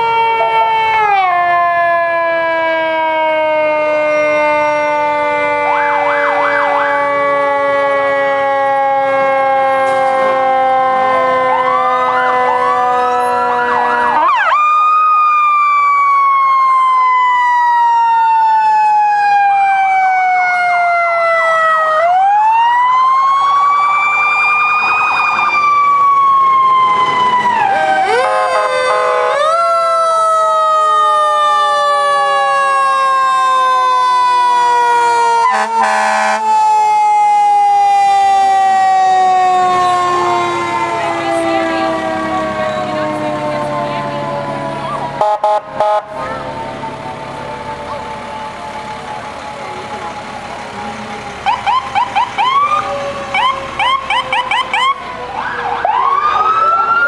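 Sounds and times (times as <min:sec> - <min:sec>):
fire truck sirens wailing: 0:00.0 - 0:57.0
horn blast: 0:35.5 - 0:36.4, 0:45.2 - 0:46.4.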